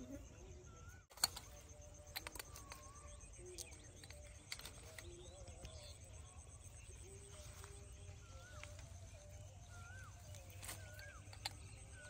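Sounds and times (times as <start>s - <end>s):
faint bird calls: 0.0s - 12.0s
sharp clicks: 1.1s - 5.8s.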